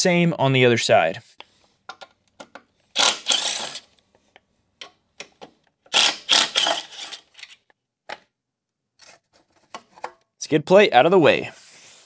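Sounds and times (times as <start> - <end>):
cordless power driver spinning: 3.0 - 3.9.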